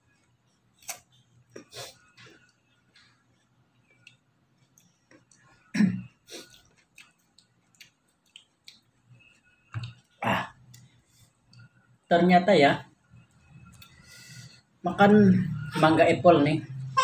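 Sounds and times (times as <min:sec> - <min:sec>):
mouth noises of people eating: 0:00.4 - 0:12.0
person clearing throat: 0:05.7 - 0:06.1.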